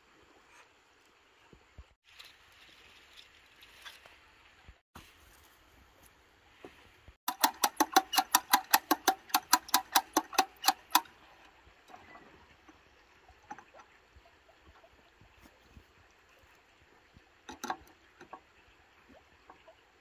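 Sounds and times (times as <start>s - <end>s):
sharp metallic clicks: 7.3s - 11.1s.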